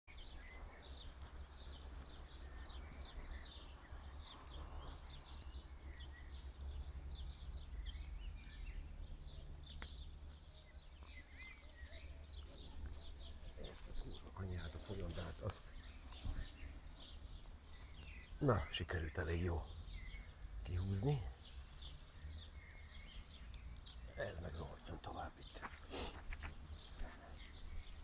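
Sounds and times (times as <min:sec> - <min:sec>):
small birds chirping: 0:00.1 - 0:28.0
low outdoor rumble: 0:01.2 - 0:25.4.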